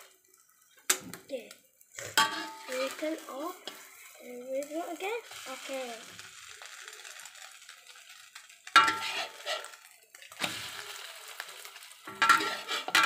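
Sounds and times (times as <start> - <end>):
faint sizzle: 0.0 - 13.0
metal spatula scraping wok: 2.0 - 4.4, 8.7 - 13.0.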